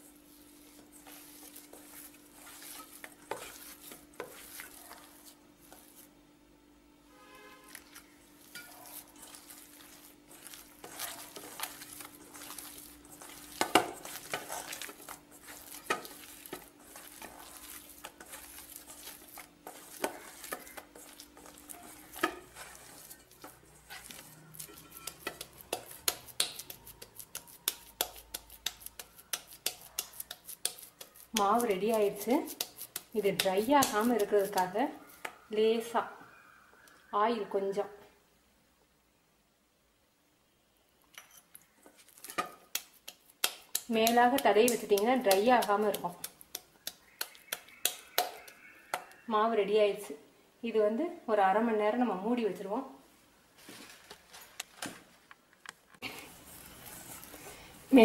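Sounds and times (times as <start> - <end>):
dough squelching and slapping: 0.0 - 6.1, 7.7 - 35.4, 41.9 - 49.2.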